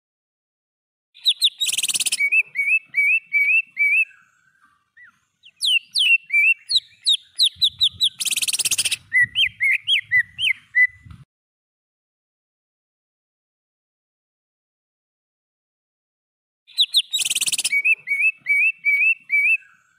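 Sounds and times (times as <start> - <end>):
harsh rattling bird trills: 1.2 - 10.9, 16.7 - 19.9
bird whistling song: 1.2 - 11.2, 16.7 - 19.9.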